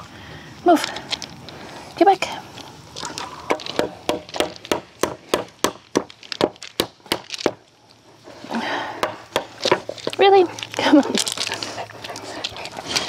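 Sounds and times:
hammer striking wooden board: 3.6s - 7.6s.

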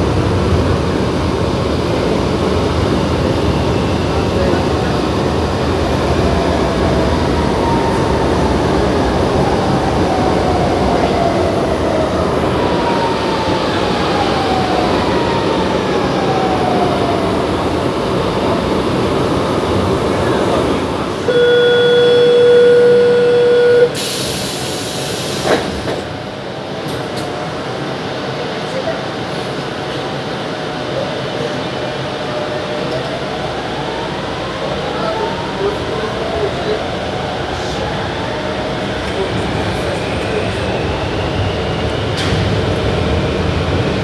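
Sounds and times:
metro train rumbling: 0.0s - 44.0s
steady beep: 21.3s - 24.0s.

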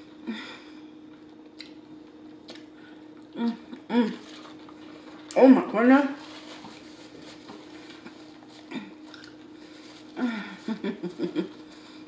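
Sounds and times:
hummed mm sounds: 0.0s - 5.6s
faint steady hum: 0.0s - 12.0s
person chewing: 1.0s - 5.4s, 7.9s - 10.1s.

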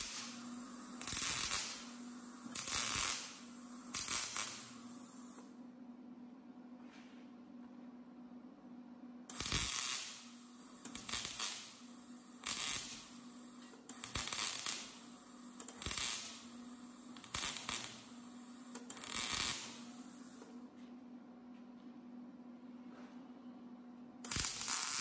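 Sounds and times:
welding arc bursts: 0.0s - 5.4s, 9.3s - 20.5s, 24.2s - 25.0s
steady low hum: 0.0s - 9.5s, 10.1s - 24.6s.

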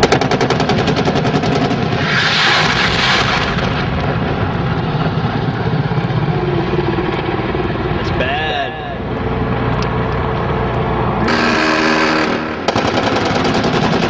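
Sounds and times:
explosion with hissing rush: 0.0s - 6.0s
gunfire crackle: 0.0s - 6.3s, 11.3s - 14.0s
low rumble: 0.7s - 14.0s.

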